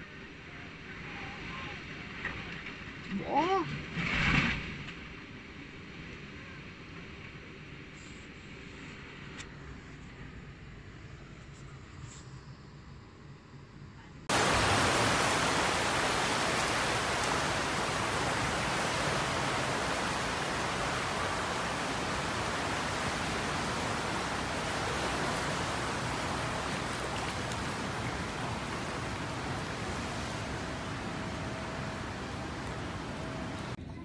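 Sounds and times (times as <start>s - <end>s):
floodwater rushing: 14.3s - 33.8s.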